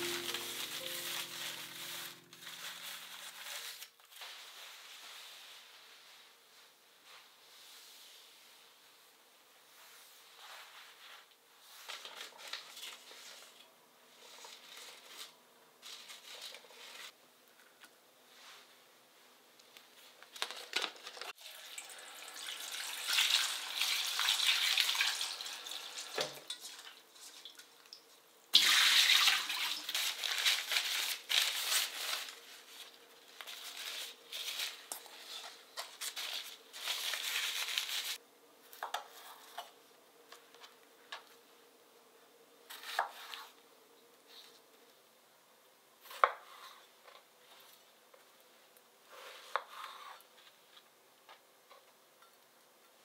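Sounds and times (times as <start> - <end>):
paper towel rustling: 0.0 - 9.0, 28.9 - 38.2
water running and splashing: 21.4 - 27.6, 28.6 - 30.4.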